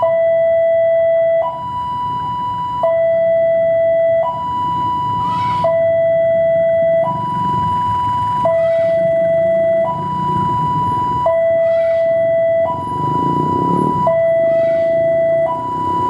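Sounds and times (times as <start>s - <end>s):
two-tone electronic alarm: 0.0s - 16.0s
locomotive engine rumble: 6.9s - 16.0s.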